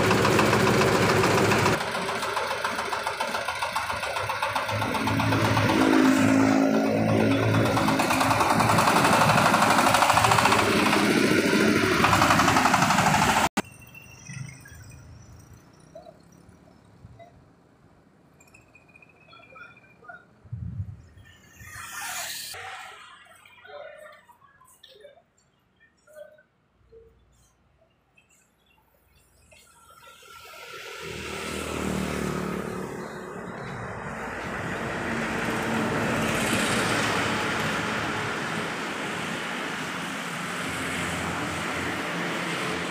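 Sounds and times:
thresher engine clattering: 0.0s - 13.6s.

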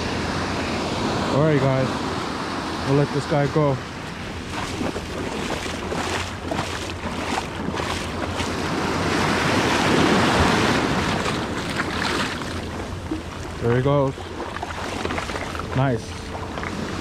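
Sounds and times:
ocean surf washing over sand: 0.0s - 17.0s.

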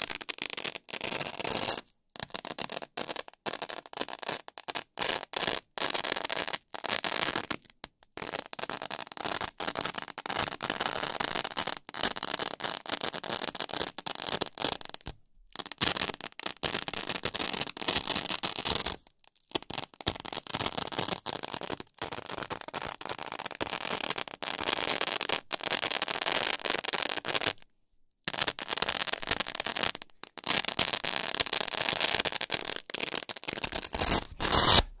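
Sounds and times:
velcro tearing apart: 28.3s - 35.0s.

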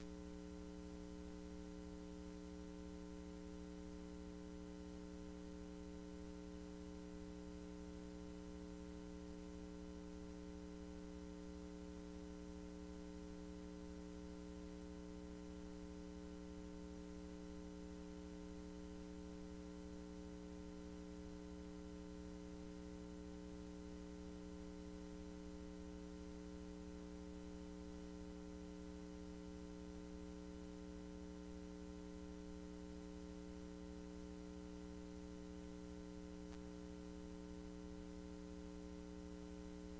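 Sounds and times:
electrical hum: 0.0s - 39.9s.

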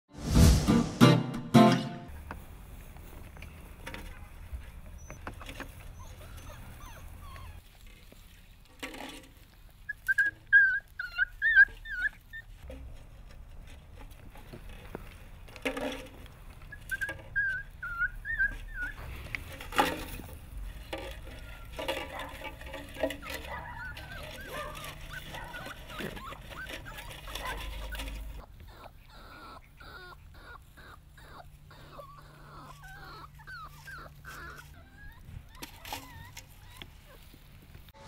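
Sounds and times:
puppies whimpering: 4.7s - 8.2s, 9.6s - 12.6s, 16.5s - 37.9s.

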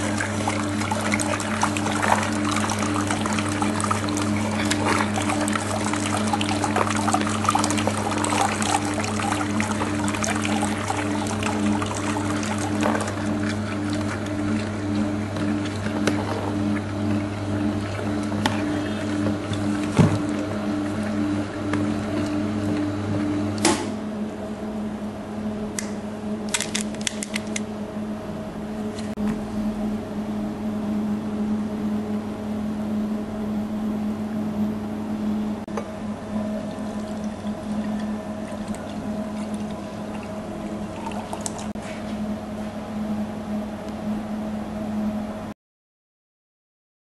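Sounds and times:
juice pouring: 0.0s - 22.9s, 36.4s - 41.8s
juice press motor hum: 0.0s - 45.5s.

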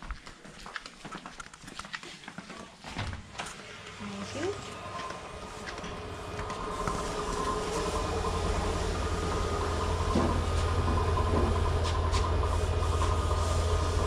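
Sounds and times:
low machine hum: 3.1s - 14.0s
thin steady whine: 3.3s - 14.0s.

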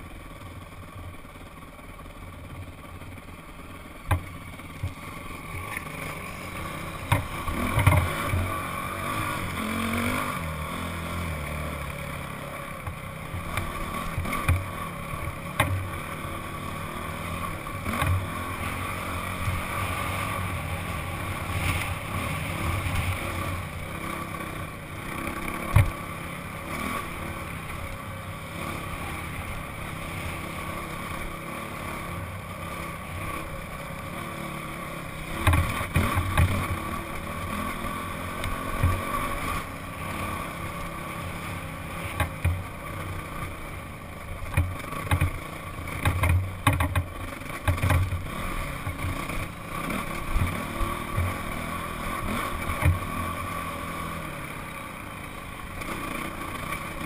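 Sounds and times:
dirt bike engine running: 0.0s - 57.0s
low thumps over rough ground: 44.4s - 49.2s.

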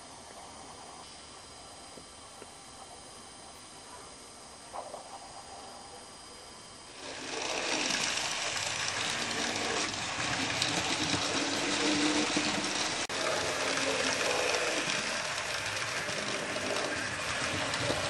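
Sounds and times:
model train whirring and clattering: 6.9s - 18.0s.

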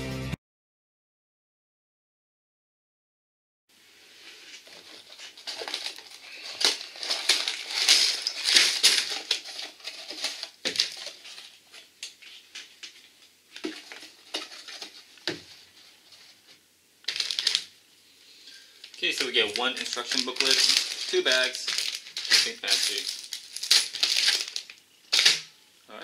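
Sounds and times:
plastic bags crinkling: 4.4s - 17.8s, 18.4s - 25.6s.

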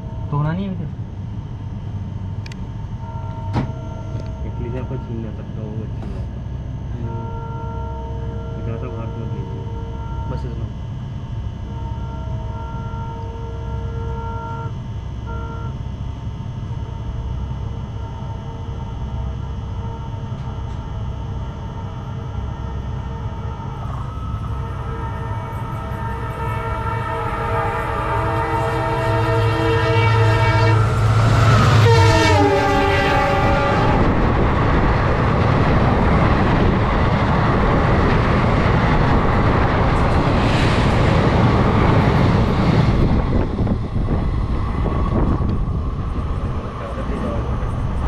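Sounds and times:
train horn: 7.0s - 10.7s, 11.6s - 15.7s, 22.4s - 34.4s
train coaches rushing past: 23.9s - 48.0s.

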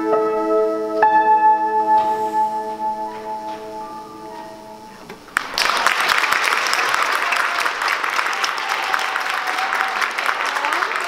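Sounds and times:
piano notes: 0.0s - 5.5s
audience applause: 5.3s - 11.0s.

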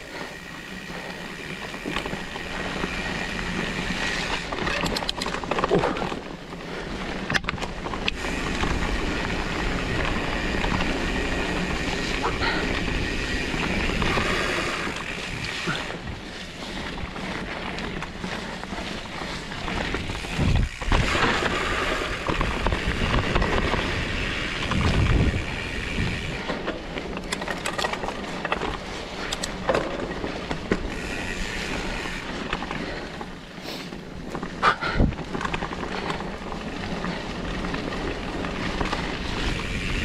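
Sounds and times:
bike rattling and clicking: 0.0s - 40.0s
bike tyres rolling on dirt: 0.0s - 40.0s
wind on microphone: 20.0s - 21.5s, 24.6s - 26.4s.

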